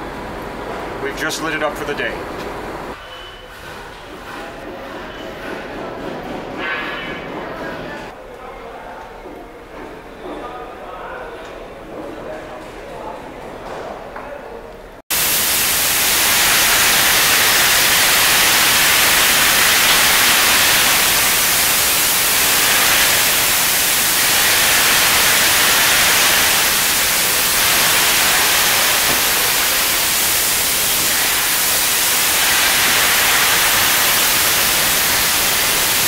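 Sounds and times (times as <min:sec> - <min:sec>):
steam locomotive hissing: 0:15.1 - 0:36.0.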